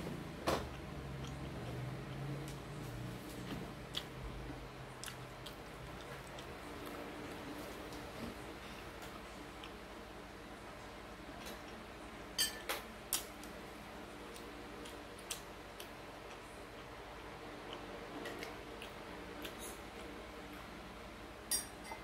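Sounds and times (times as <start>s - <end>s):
soft ticks of eating: 0.7s - 21.0s.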